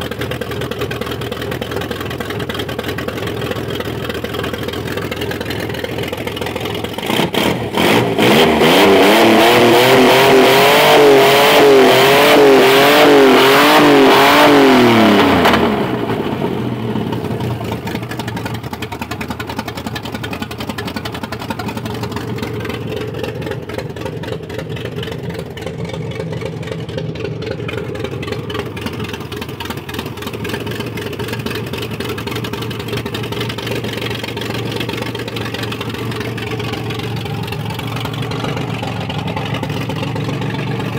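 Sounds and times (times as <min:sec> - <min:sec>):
engine idling: 0:00.0 - 0:40.9
petrol engine revving: 0:06.2 - 0:18.3, 0:21.4 - 0:40.9.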